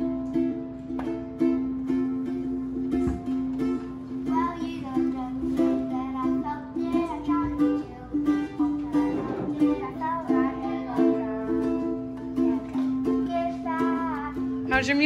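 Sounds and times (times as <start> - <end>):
ukulele strumming: 0.0 - 15.0
boy singing: 4.1 - 14.7.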